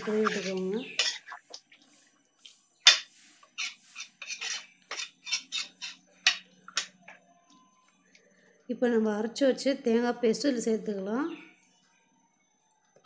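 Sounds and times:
ladle scraping metal pot: 0.0s - 1.8s, 2.9s - 6.9s.

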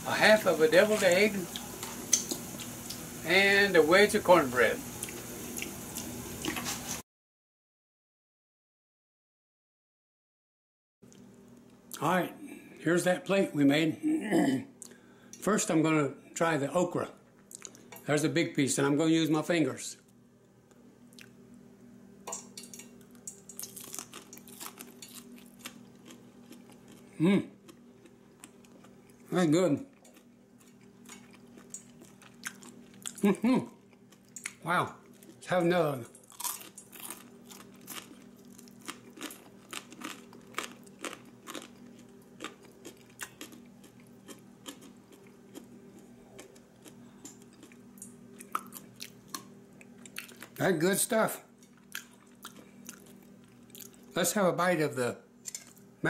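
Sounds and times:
steady low hum: 11.1s - 56.0s
crunchy chewing: 23.0s - 29.3s, 29.9s - 35.4s, 36.2s - 50.6s, 51.7s - 54.1s.

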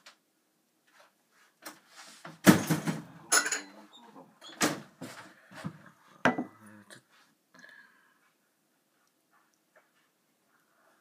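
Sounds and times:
dishes clattering: 2.5s - 3.9s, 6.2s - 6.6s.

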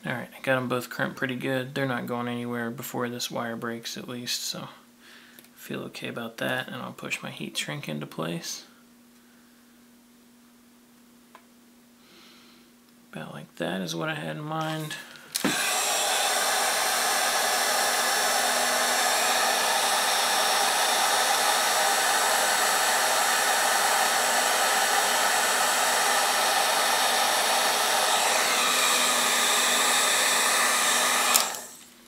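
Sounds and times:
heat gun blowing: 14.7s - 32.0s
heat gun switch click: 15.4s - 15.6s, 31.1s - 31.7s.

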